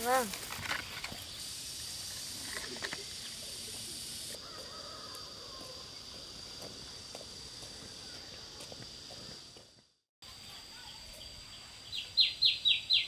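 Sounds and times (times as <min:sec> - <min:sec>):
outdoor hiss: 0:00.0 - 0:04.5.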